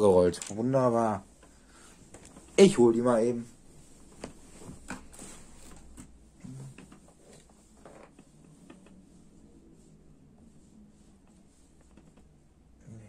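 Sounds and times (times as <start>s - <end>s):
rustling: 0.3s - 12.5s
faint knocks and clicks: 11.2s - 12.4s.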